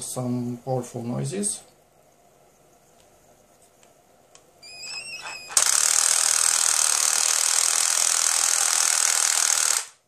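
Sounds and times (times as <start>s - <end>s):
screwdriver motor whirring: 4.8s - 10.0s.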